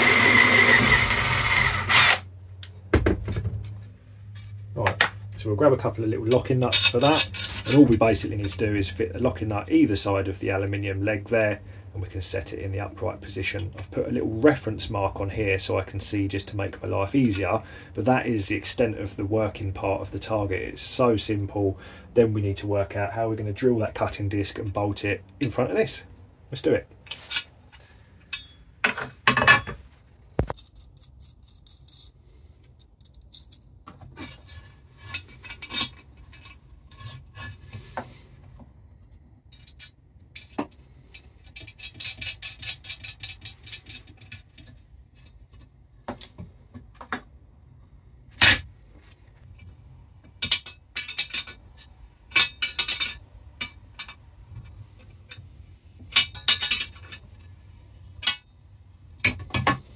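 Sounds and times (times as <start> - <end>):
metal parts clinking and scraping: 6.4 - 7.9, 27.0 - 29.8, 30.4 - 37.8, 39.5 - 45.4, 50.4 - 55.5, 56.1 - 57.6.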